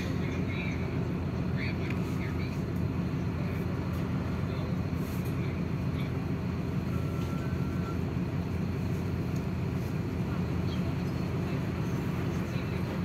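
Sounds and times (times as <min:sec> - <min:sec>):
bus diesel engine idling: 0:00.0 - 0:13.0
faint short tone: 0:06.9 - 0:08.1.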